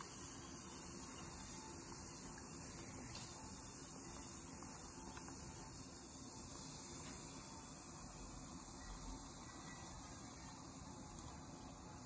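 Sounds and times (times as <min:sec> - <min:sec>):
faint steady hiss: 0:00.0 - 0:12.0.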